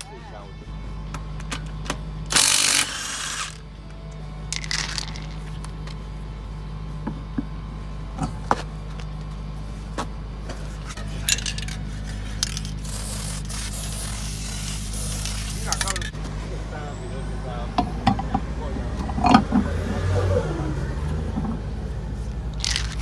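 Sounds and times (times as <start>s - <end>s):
steady low hum: 0.0s - 23.0s
compressed air hissing: 12.3s - 16.0s.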